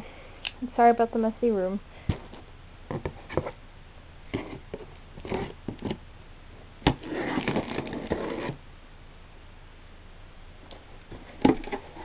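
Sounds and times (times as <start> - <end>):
knife slicing tape and cardboard: 6.9 - 8.6.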